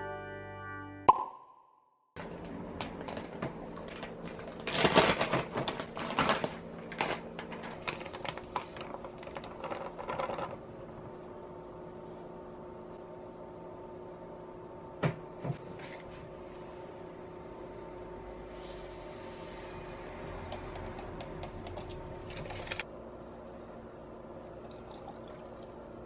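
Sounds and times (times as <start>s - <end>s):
faint steady hum: 2.2s - 26.0s
paper bag rustling: 2.9s - 10.6s.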